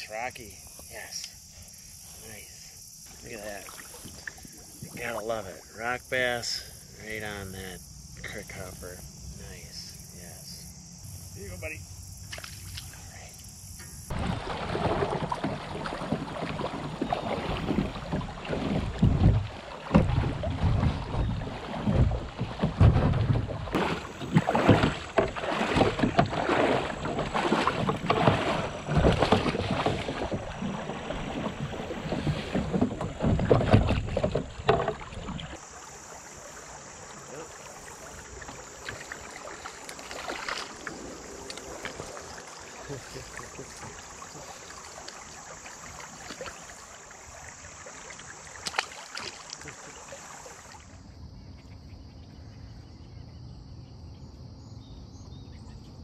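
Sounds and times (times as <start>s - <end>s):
crickets chirping: 0.0s - 56.0s
paddle splashes: 3.1s - 5.9s, 14.0s - 51.1s
knocks on kayak hull: 14.7s - 35.4s.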